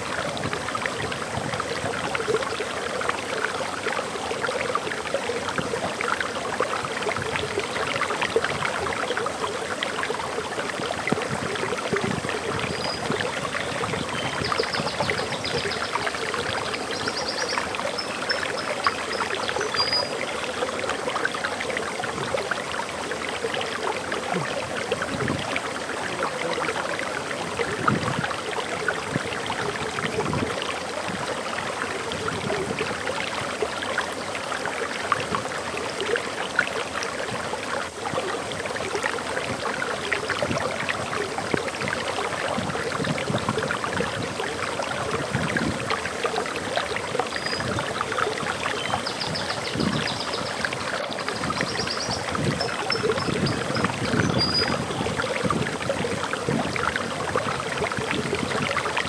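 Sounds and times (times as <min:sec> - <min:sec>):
waterfall rushing: 0:00.0 - 0:59.0
faint high bird chirps: 0:17.0 - 0:20.2, 0:51.6 - 0:54.8.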